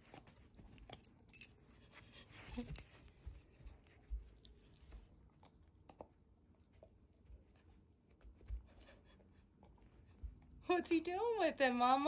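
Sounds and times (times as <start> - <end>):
collar tags jingling: 0.9 - 4.4.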